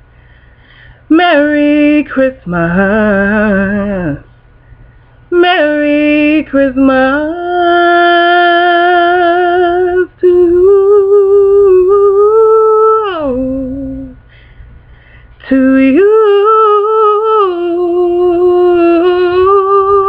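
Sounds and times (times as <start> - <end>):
woman humming: 15.5 - 20.0.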